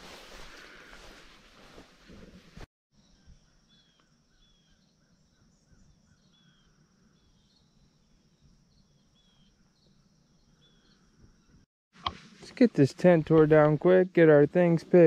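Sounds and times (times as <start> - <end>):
bird chirping: 3.0 - 11.6.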